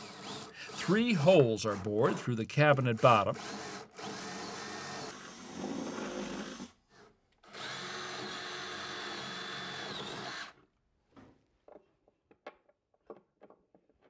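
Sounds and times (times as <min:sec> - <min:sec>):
cordless drill boring into wood: 0:00.0 - 0:10.6
faint taps and handling: 0:11.1 - 0:14.0.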